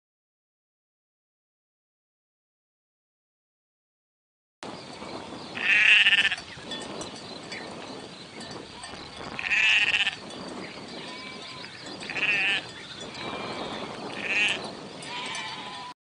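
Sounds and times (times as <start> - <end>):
faint flock bleating: 5.6 - 6.4, 8.7 - 10.2, 11.0 - 16.0
sheep bleating loudly: 5.6 - 6.4, 8.8 - 10.2, 11.0 - 16.0.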